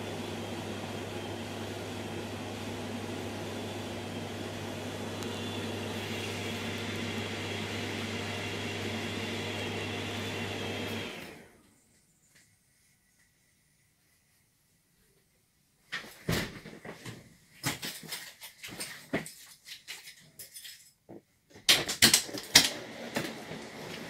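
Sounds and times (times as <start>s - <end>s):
mechanical hum and fan whir: 0.0s - 11.6s.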